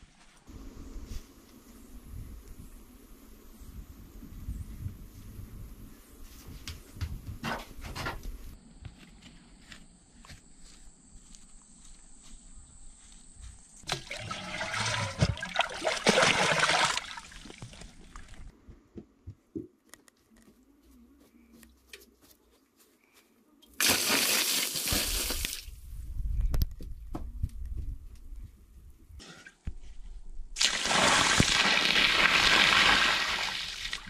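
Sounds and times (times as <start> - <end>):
water splashing onto floor: 23.8 - 25.7, 30.6 - 34.0.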